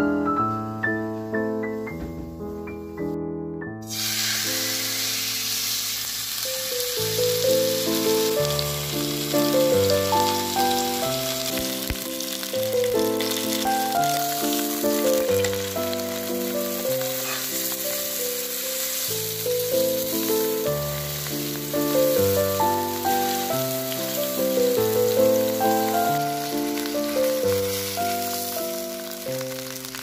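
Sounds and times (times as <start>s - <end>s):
steak sizzling in a frying pan: 3.8s - 30.0s
background music: 6.7s - 30.0s.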